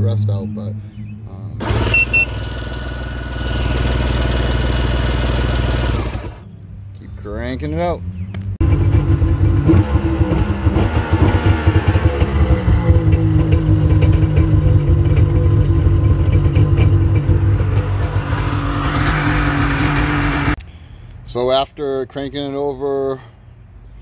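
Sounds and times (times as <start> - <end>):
starter cranking engine: 1.6 - 6.5.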